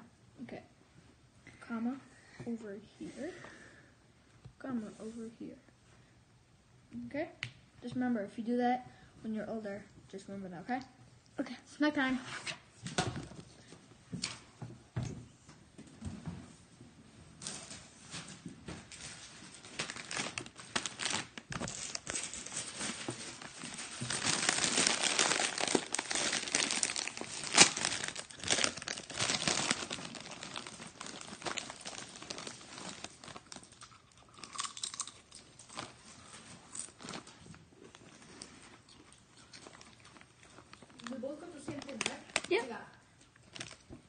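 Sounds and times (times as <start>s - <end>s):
foil chip bag crinkling: 18.9s - 38.2s, 39.5s - 42.8s, 43.4s - 43.9s
chips being eaten: 33.4s - 36.0s.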